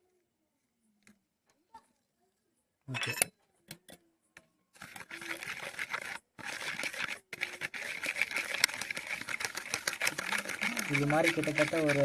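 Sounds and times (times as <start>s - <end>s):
spoon whipping in a bowl: 4.8s - 12.0s.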